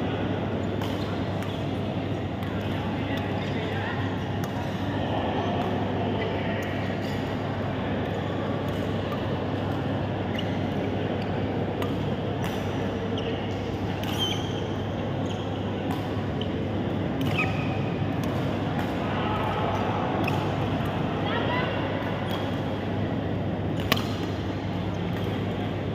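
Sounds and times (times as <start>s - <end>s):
faint background chatter: 0.0s - 25.9s
shoe squeaks on court floor: 14.1s - 15.5s
racket hitting shuttlecock: 15.8s - 16.3s, 17.0s - 17.6s, 18.2s - 19.6s, 20.2s - 21.0s, 23.7s - 24.5s.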